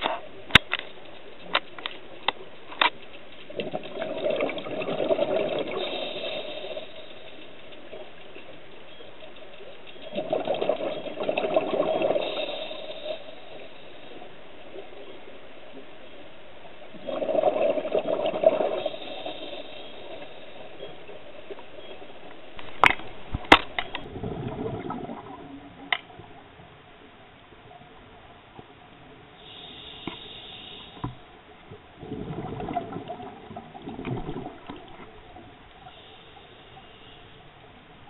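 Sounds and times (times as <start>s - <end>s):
sharp clicks: 0.0s - 3.7s
diver's exhaled bubbles underwater: 3.5s - 6.4s, 10.1s - 12.6s, 16.9s - 19.5s, 24.0s - 25.9s, 32.0s - 35.4s
short hiss: 29.4s - 31.2s.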